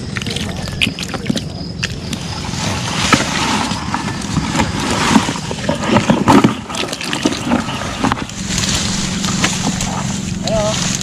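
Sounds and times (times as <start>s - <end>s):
steady rushing noise: 2.0s - 11.0s
irregular knocks and clatter: 3.0s - 10.4s.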